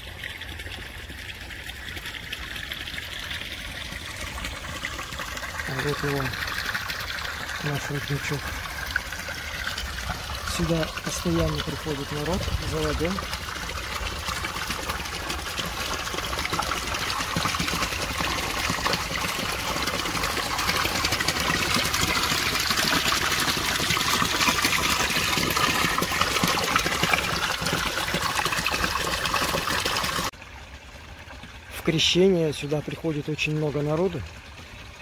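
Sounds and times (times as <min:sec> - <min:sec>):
water pouring into basin: 0:00.0 - 0:35.0.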